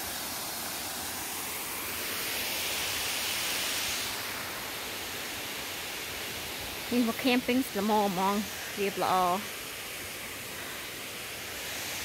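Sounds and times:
waterfall pouring into pool: 0:00.0 - 0:06.9.

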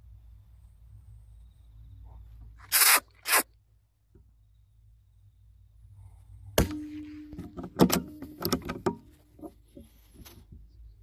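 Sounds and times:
short hissing burst: 0:02.6 - 0:03.5.

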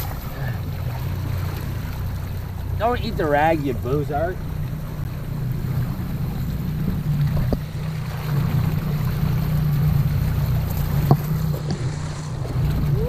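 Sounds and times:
outboard motor running: 0:00.0 - 0:13.0
water splashing along hull: 0:00.0 - 0:13.0.

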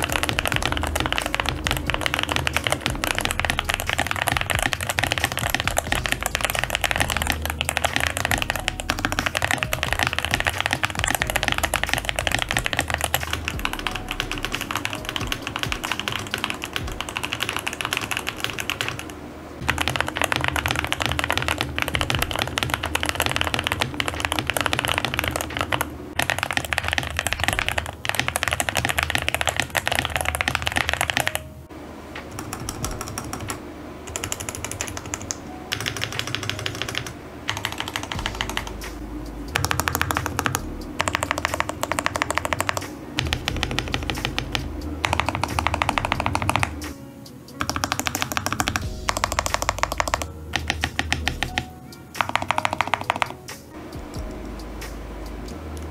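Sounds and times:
mechanical keyboard key clacks: 0:47.6 - 0:53.4.

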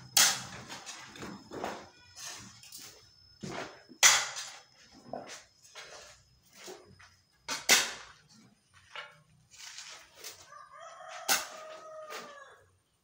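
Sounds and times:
rooster crowing: 0:10.3 - 0:12.8.

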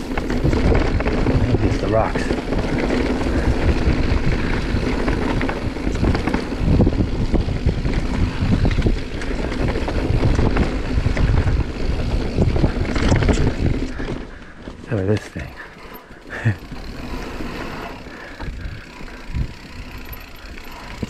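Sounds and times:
wind rumbling on microphone: 0:00.0 - 0:14.6, 0:16.7 - 0:21.0
bike rattling over bumps: 0:00.0 - 0:21.0.

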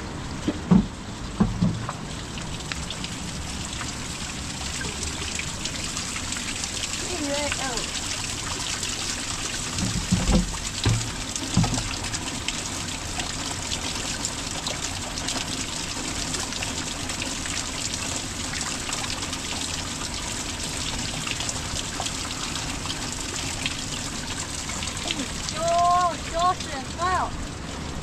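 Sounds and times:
water trickling into plastic jug: 0:09.6 - 0:13.6
low bumps: 0:09.8 - 0:12.0.

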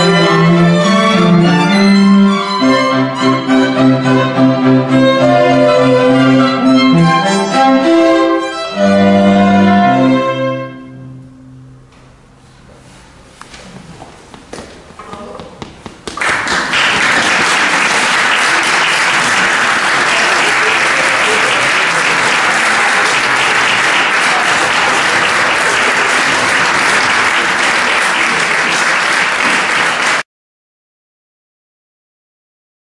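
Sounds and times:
audience applauding: 0:15.6 - 0:30.2.

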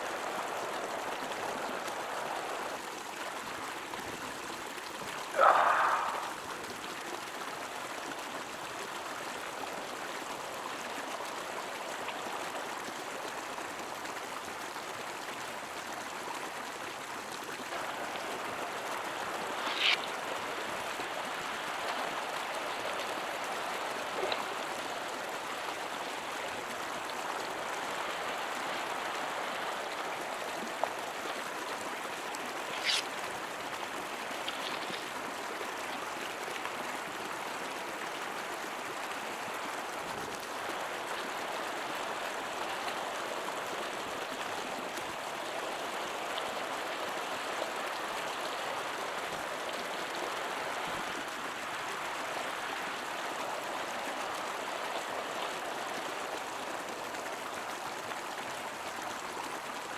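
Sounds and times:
river water rushing: 0:00.0 - 0:59.9
sharp ticks or splashes: 0:17.7 - 0:36.1.

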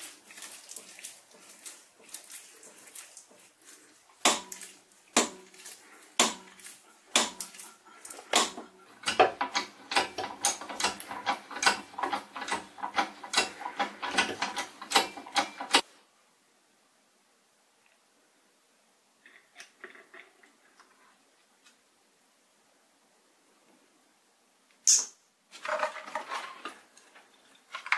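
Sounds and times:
metallic cracks of broach cutting: 0:04.2 - 0:15.8.

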